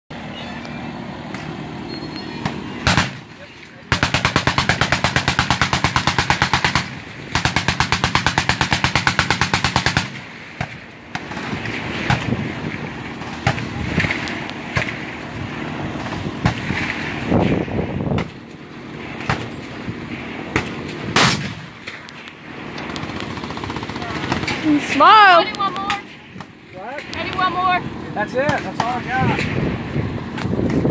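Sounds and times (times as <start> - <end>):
single gunshots: 2.8 - 3.2, 20.6 - 21.7
machine-gun fire: 2.8 - 3.3, 3.9 - 11.5, 20.6 - 21.7, 22.8 - 24.8.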